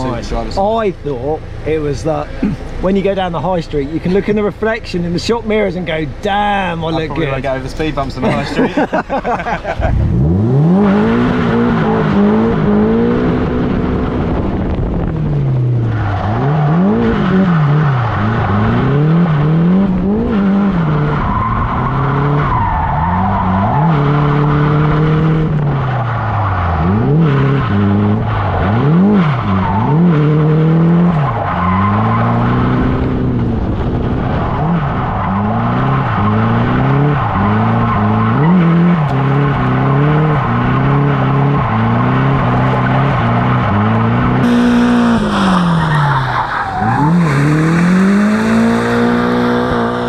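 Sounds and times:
car engine revving: 0:00.0 - 0:50.0.

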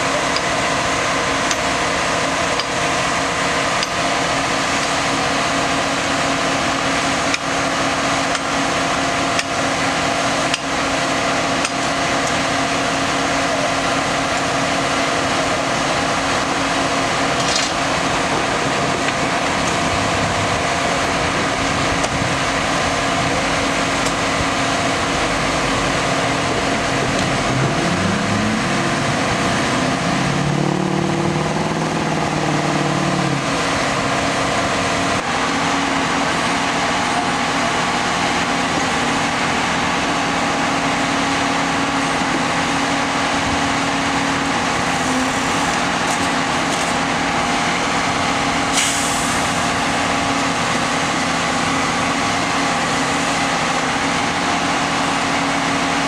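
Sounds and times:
truck engine droning: 0:00.0 - 0:56.0
deeper engine note rising and falling: 0:14.7 - 0:48.7.

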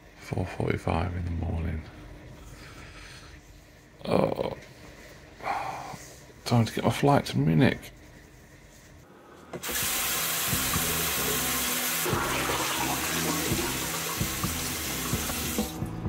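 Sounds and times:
tap water running into sink: 0:09.6 - 0:15.8.

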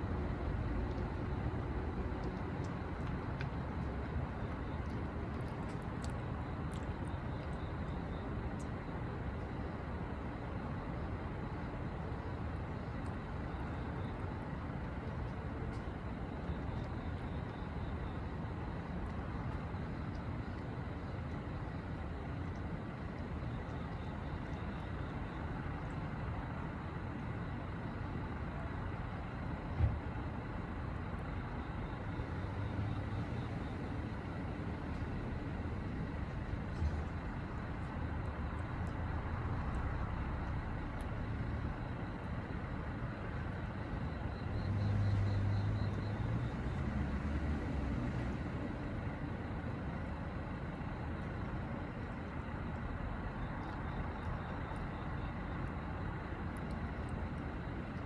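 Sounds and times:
distant road traffic hum: 0:00.0 - 0:58.0
vehicle passing: 0:44.6 - 0:48.8.

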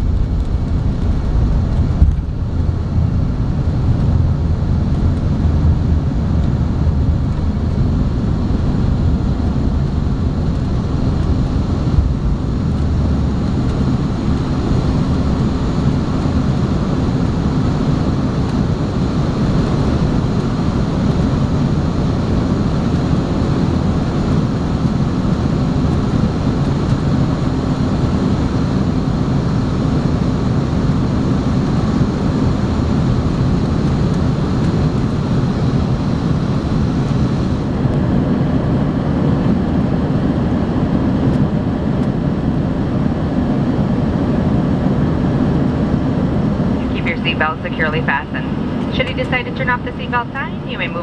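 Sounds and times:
jet engines roaring in cabin: 0:00.0 - 0:51.0
faint steady hum: 0:44.8 - 0:51.0.

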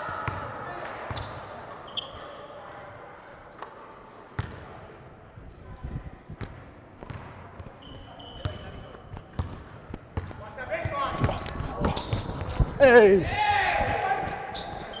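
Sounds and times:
sneaker squeaks: 0:00.0 - 0:02.5, 0:05.5 - 0:15.0
basketball bouncing on court: 0:00.1 - 0:00.5, 0:04.4 - 0:04.7, 0:06.4 - 0:07.8, 0:08.4 - 0:14.4.

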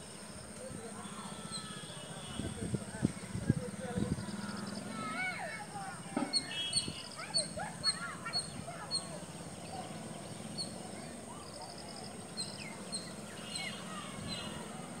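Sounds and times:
small birds chirping: 0:03.1 - 0:15.0.

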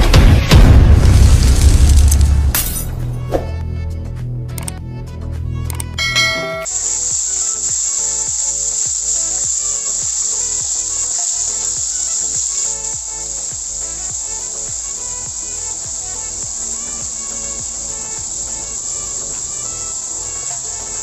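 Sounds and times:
music with low thumping beat: 0:00.0 - 0:05.0, 0:05.8 - 0:21.0
high-pitched hiss: 0:06.0 - 0:21.0.

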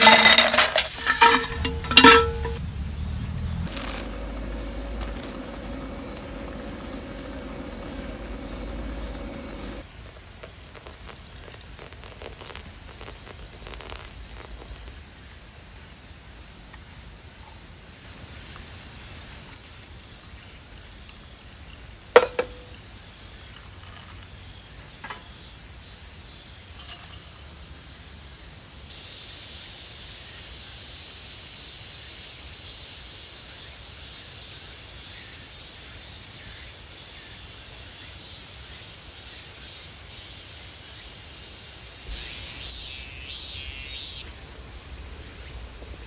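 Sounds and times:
insects chirping: 0:00.0 - 0:46.0
low steady hum: 0:01.0 - 0:09.8.

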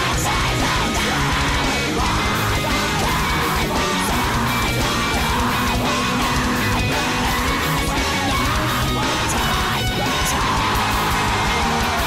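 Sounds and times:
distorted electric guitar: 0:00.0 - 0:12.0
drums: 0:00.0 - 0:12.0.

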